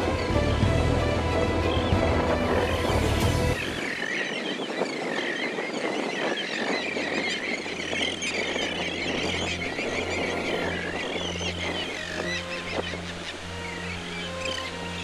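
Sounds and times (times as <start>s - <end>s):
background music: 0.0s - 3.9s, 8.8s - 15.0s
birds calling: 0.0s - 15.0s.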